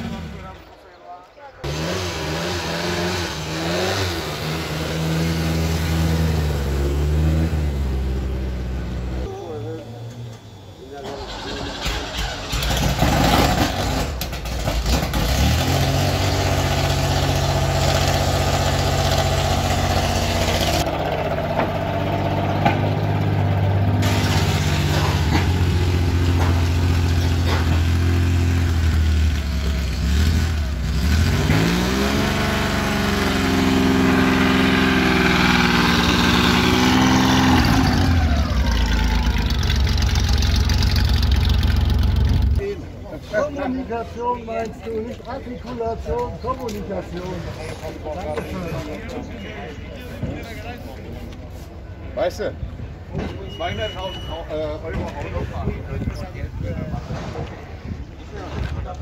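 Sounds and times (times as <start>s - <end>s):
car engine idling and revving: 0.0s - 0.9s, 1.6s - 43.0s.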